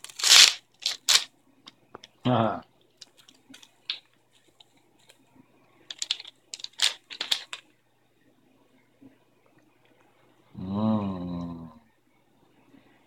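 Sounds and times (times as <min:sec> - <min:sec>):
plastic wrapper crinkling: 0:00.0 - 0:01.3, 0:03.0 - 0:04.1, 0:05.9 - 0:07.6.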